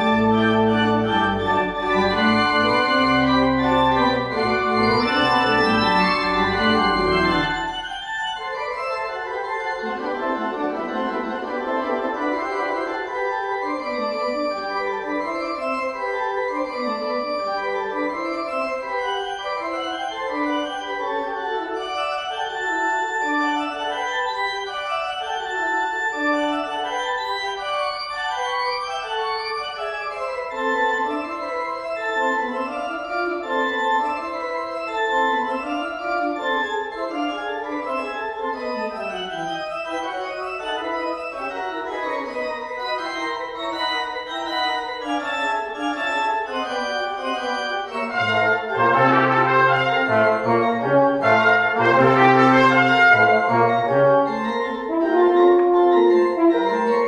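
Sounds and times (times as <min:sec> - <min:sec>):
pipe organ playing: 0:00.0 - 0:57.0.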